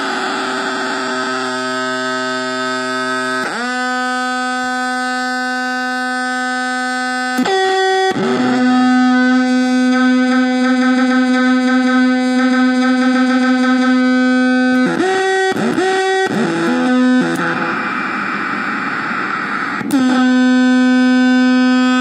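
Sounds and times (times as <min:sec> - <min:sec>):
harsh distorted drone: 0:00.0 - 0:22.0.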